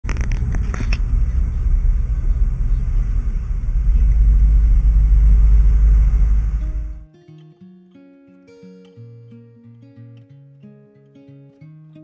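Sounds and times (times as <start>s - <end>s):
car cabin road rumble: 0.0s - 7.0s.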